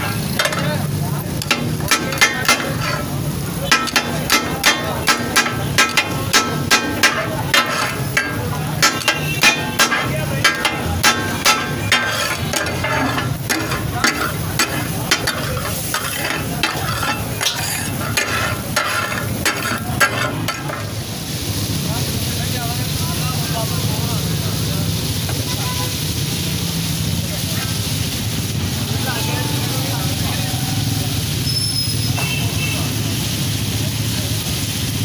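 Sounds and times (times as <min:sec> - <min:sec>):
spatulas clanging on iron griddle: 0:00.0 - 0:21.0
oil sizzling: 0:00.0 - 0:35.0.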